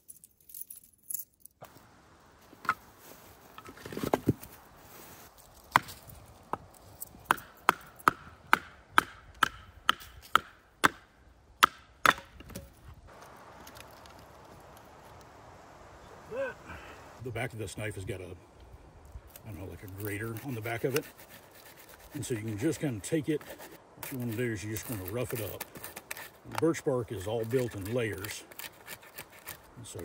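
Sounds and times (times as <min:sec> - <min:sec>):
firewood splitting knocks: 0:11.6 - 0:14.2.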